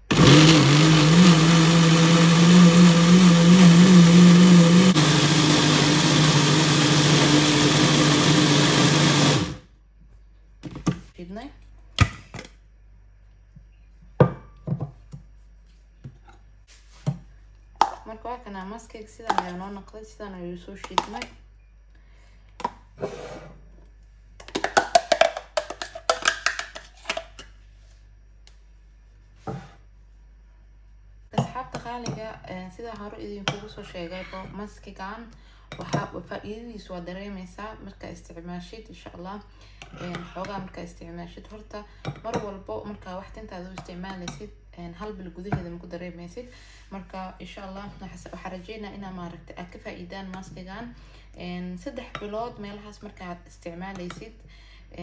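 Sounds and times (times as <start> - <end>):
blender motor running: 0.0 - 9.7.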